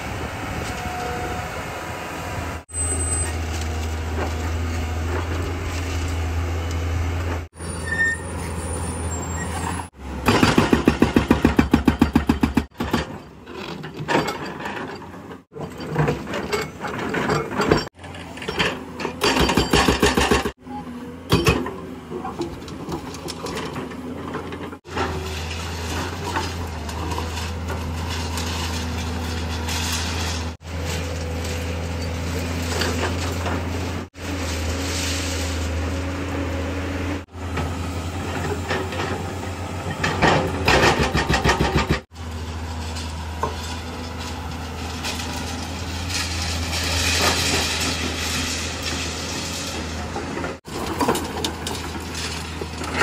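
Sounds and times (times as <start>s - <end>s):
excavator diesel engine running: 0.0s - 10.3s, 15.6s - 53.0s
hydraulic breaker hammering concrete: 10.2s - 12.9s.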